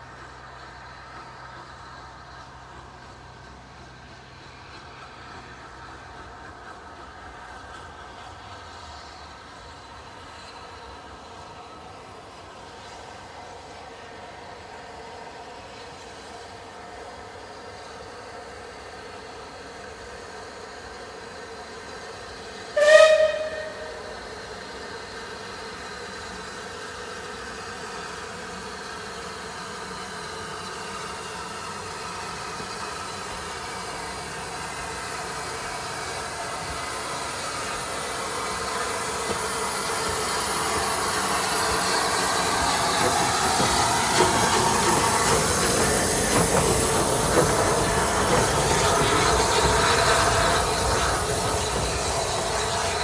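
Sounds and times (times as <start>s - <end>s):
steam engine running and hissing: 0.0s - 53.0s
steam locomotive whistle: 22.7s - 24.4s.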